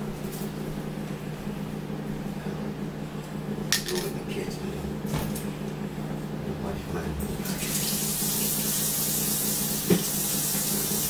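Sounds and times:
faucet running into sink: 0:07.5 - 0:11.0.

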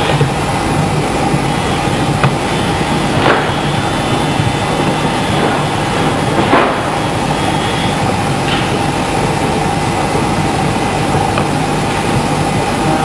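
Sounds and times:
loud rushing noise: 0:00.0 - 0:13.0.

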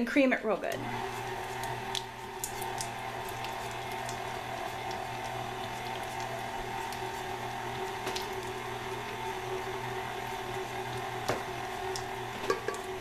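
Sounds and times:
mixer clicks: 0:00.6 - 0:07.1
stand mixer motor hum: 0:00.7 - 0:13.0.

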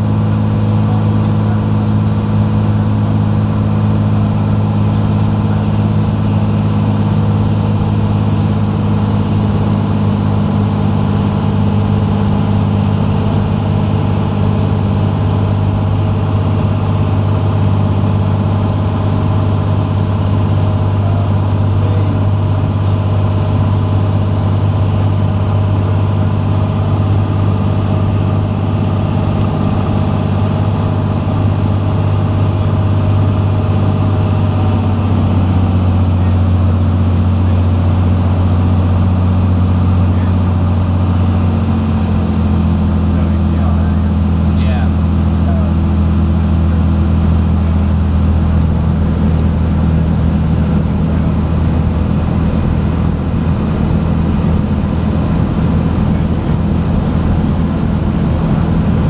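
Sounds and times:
propeller plane engine droning: 0:00.0 - 0:59.0.

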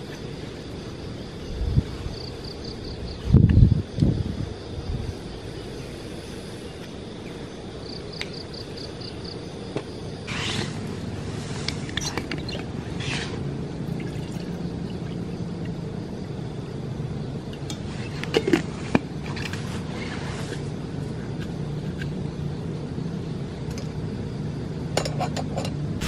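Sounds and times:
steady low rumble: 0:00.0 - 0:25.0
water poured into metal cup: 0:13.9 - 0:15.1.

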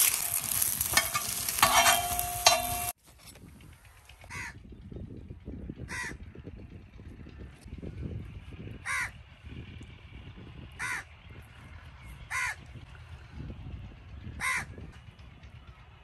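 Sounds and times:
crow cawing: 0:04.3 - 0:04.6, 0:05.9 - 0:06.2, 0:08.8 - 0:09.1, 0:10.8 - 0:11.1, 0:12.3 - 0:12.6, 0:14.4 - 0:14.7.

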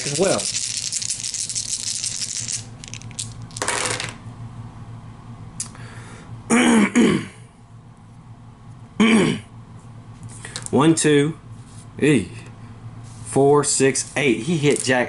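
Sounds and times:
dice rattling on board: 0:00.0 - 0:04.2.

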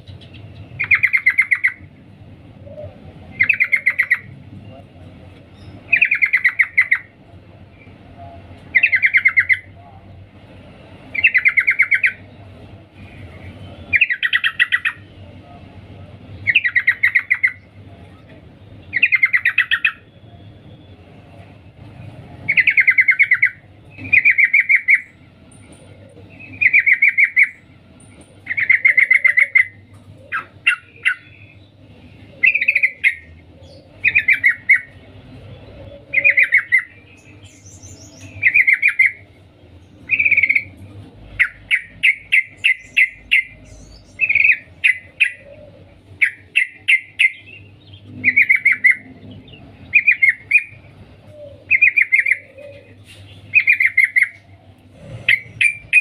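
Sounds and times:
bulbul chattering call: 0:41.4 - 0:50.8, 0:53.5 - 0:54.6.

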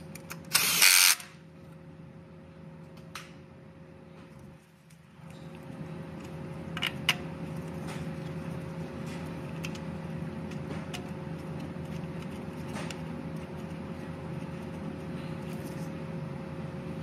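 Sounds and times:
low tonal hum: 0:01.4 - 0:17.0.

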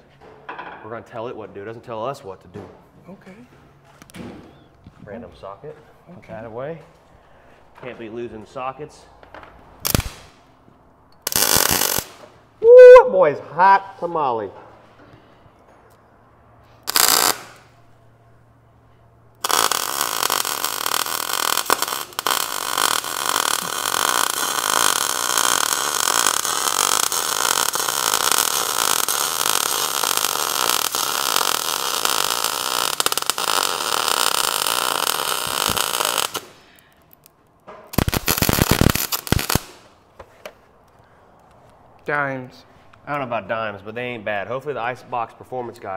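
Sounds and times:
welder arc crackling: 0:09.8 - 0:10.3, 0:11.2 - 0:12.2, 0:16.8 - 0:17.7, 0:19.4 - 0:37.3, 0:37.9 - 0:39.8.

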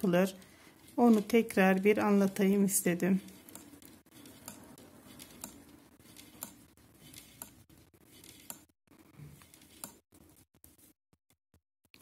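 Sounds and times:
knitting needles clicking: 0:03.2 - 0:07.6.

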